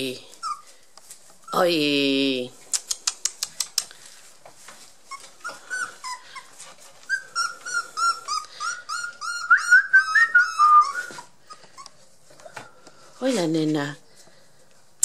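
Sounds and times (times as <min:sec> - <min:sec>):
puppies whimpering: 0:00.3 - 0:00.8, 0:05.0 - 0:12.1
sharp clicks: 0:02.7 - 0:04.0.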